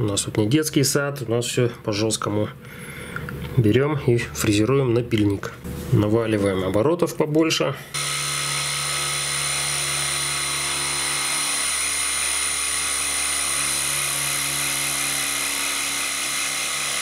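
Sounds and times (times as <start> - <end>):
end mill cutting steel: 8.0 - 17.0
milling machine whining: 8.0 - 17.0.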